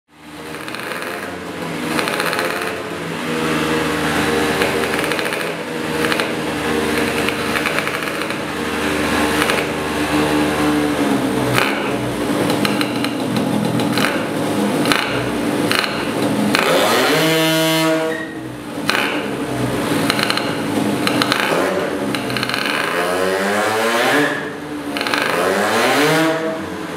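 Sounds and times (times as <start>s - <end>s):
engine sharp cracks: 0.4s - 3.2s, 4.0s - 10.0s, 11.4s - 17.4s, 18.1s - 23.3s, 24.2s - 26.5s
two-stroke scooter engine running: 0.4s - 17.2s, 18.1s - 23.5s, 24.6s - 25.8s.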